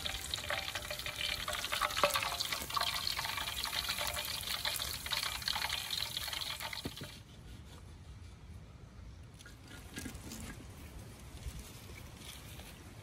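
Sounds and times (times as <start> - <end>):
frying oil crackling: 0.0 - 7.1
oil dripping into pan: 0.0 - 7.1.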